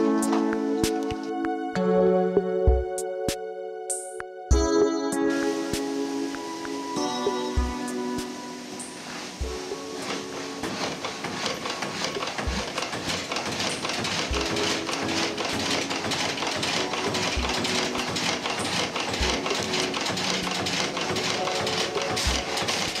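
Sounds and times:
saw frame clattering: 10.0s - 23.0s.

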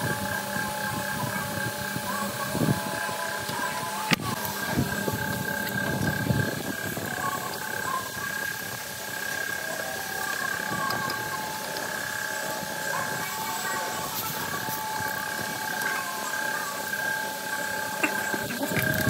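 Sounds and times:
high whine: 0.0s - 19.0s
mechanical hum: 0.0s - 19.0s.

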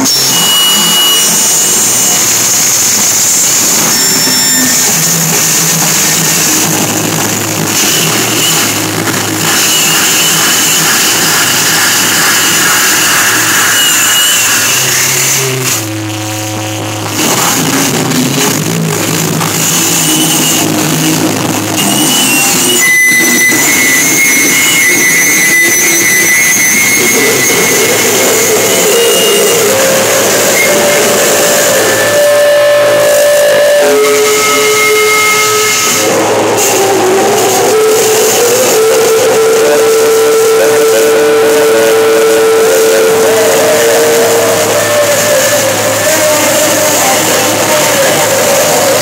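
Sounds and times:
held steady note: 0.0s - 49.0s
loud distorted live band music: 0.0s - 49.0s
steady high-pitched tone: 0.0s - 49.0s.

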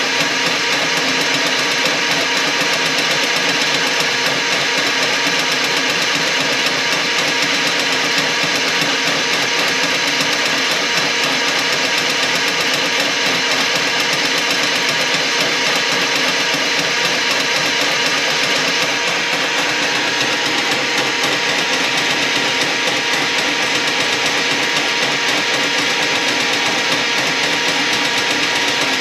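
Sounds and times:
drain-cleaning machine running: 0.0s - 29.0s.

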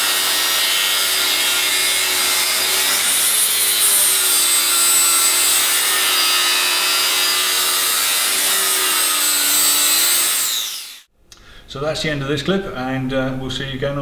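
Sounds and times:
angle grinder grinding metal: 0.0s - 11.1s.

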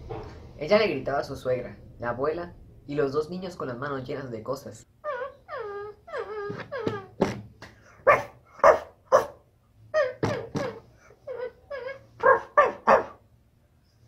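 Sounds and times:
woman imitating dog barks: 10.0s - 13.2s.

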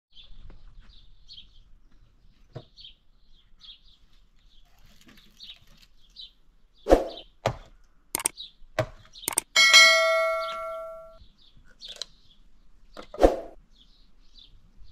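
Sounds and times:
small bird chirping: 0.1s - 7.4s, 8.2s - 14.9s
sharp knocks and clicks: 7.4s - 9.6s.

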